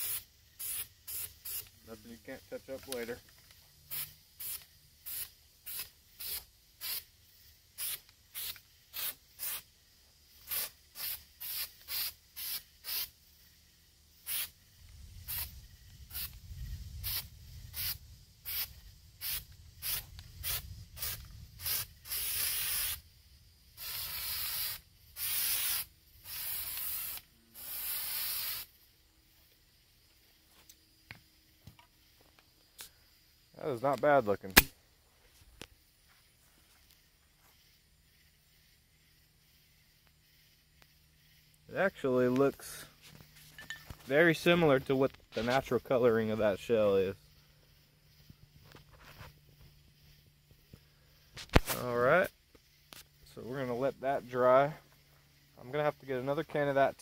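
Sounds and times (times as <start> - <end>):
aerosol spray can hissing: 0.0 - 2.1, 3.8 - 7.1, 7.7 - 13.2, 14.2 - 14.6, 15.2 - 23.1, 23.7 - 28.9.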